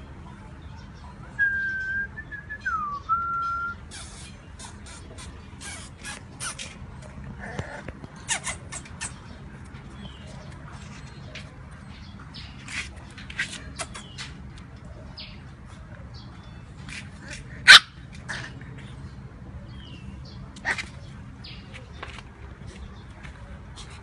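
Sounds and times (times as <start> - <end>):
puppy yipping and squeaking: 3.9 - 9.3, 17.7 - 18.0.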